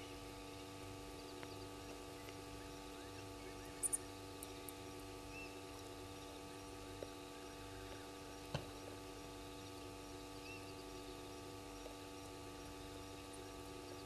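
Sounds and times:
steady hum: 0.0 - 14.0
faint high chirping: 1.2 - 4.6.

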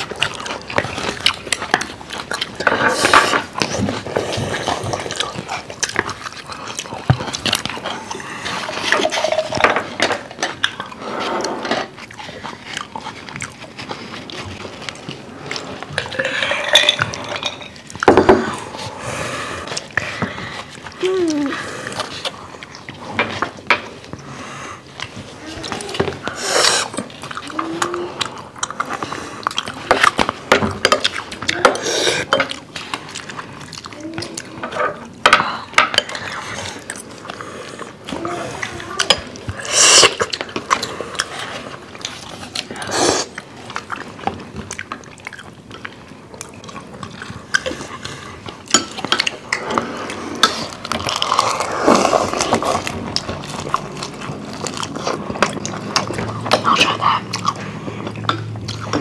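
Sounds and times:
spoons scraping ceramic bowls: 16.0 - 17.9
soup slurping: 26.2 - 27.1, 39.0 - 41.2.

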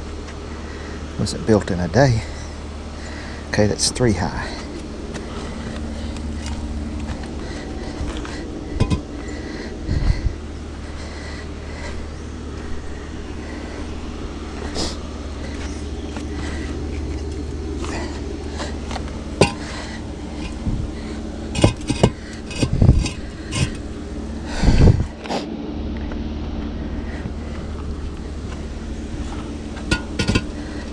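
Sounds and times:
steady low rumble: 0.0 - 30.9
gritty scrapes: 4.3 - 10.2, 10.8 - 23.9
concrete blocks clacking: 8.8 - 9.1, 19.4 - 19.8, 21.6 - 23.8, 29.8 - 30.6.

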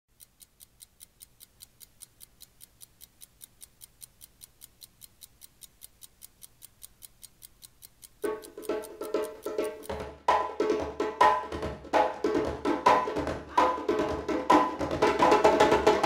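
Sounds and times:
rapid sharp ticking: 0.1 - 10.0
tribal hand percussion: 8.2 - 16.0.

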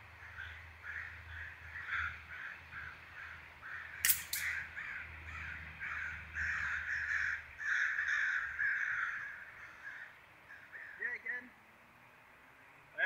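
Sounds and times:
crows cawing: 0.2 - 11.2
air rifle shots: 4.0 - 4.6.

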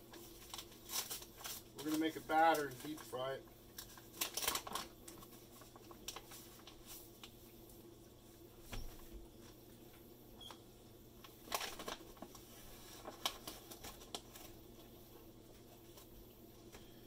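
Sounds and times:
paper bag rustling and crinkling: 0.0 - 7.2, 11.3 - 14.6
faint steady hum: 0.0 - 17.0.

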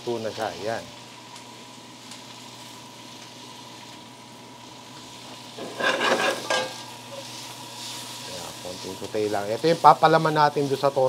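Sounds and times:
food sizzling in butter in a skillet: 0.0 - 11.0
spatula scraping and stirring pan: 5.6 - 8.2.

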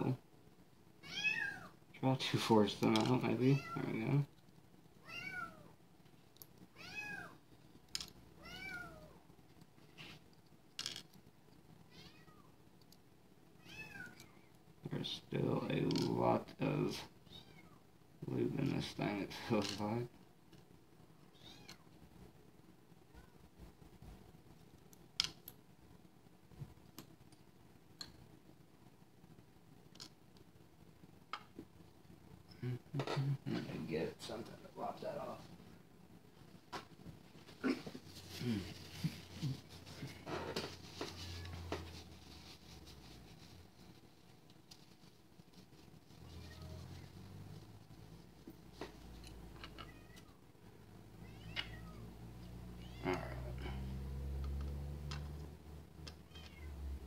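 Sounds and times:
kitten meowing faintly: 46.3 - 47.1, 51.2 - 52.1.

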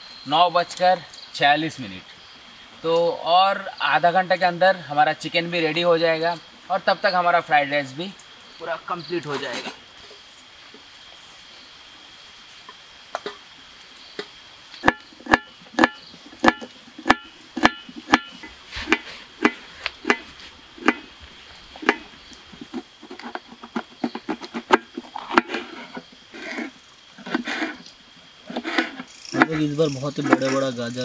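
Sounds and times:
knife chopping on wooden board: 14.8 - 21.1, 21.8 - 22.1.

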